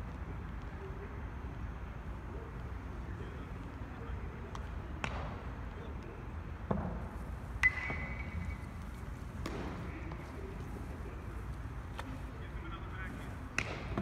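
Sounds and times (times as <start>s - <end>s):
balls caught in leather gloves: 4.5s - 5.4s, 9.3s - 10.6s, 13.5s - 14.0s
metal bat striking ball: 7.6s - 8.5s.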